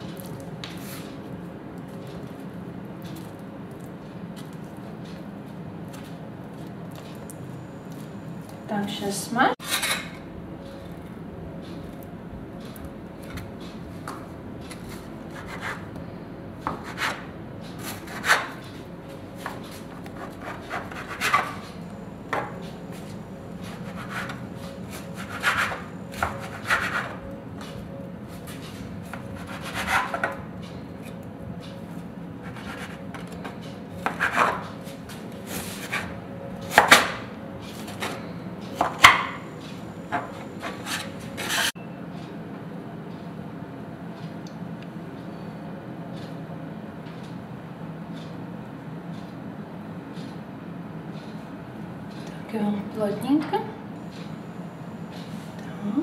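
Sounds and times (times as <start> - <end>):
steady low hum: 0.0 - 56.0
knife scraping on countertop: 9.6 - 10.2, 17.8 - 18.6, 19.4 - 21.6, 23.6 - 27.2, 29.1 - 30.4, 32.4 - 34.7, 35.5 - 38.2, 40.1 - 41.8.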